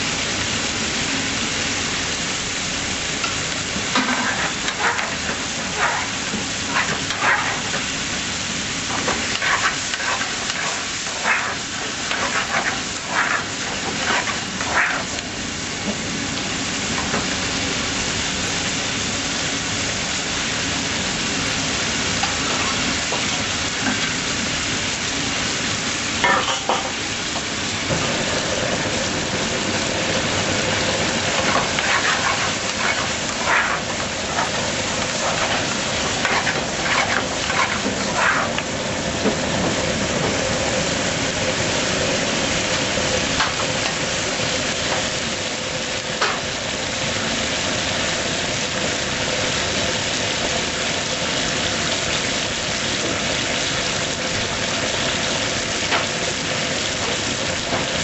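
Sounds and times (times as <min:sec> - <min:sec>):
food sizzling in a frying pan: 0:00.0 - 0:58.0
metal spoon scraping a pan: 0:04.0 - 0:07.9, 0:08.9 - 0:15.2, 0:26.2 - 0:26.9, 0:31.4 - 0:38.7.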